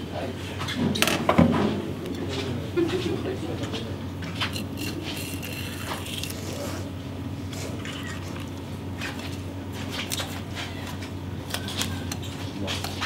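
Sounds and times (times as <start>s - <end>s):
steady low hum: 0.0s - 13.0s
crunching and scraping of blade: 4.2s - 6.9s.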